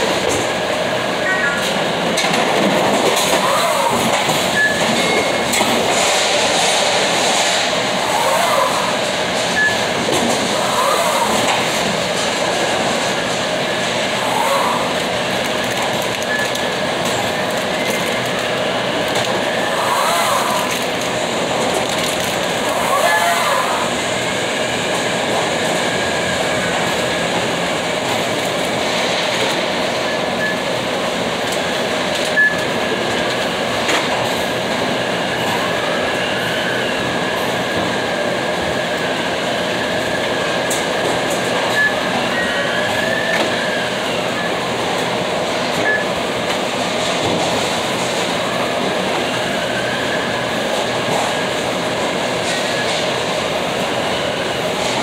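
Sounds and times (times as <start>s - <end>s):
loud machinery running: 0.0s - 55.0s
squeals and sliding whines: 3.3s - 5.6s, 8.0s - 10.0s, 10.6s - 11.7s, 19.5s - 20.8s, 22.6s - 24.0s, 41.6s - 44.6s.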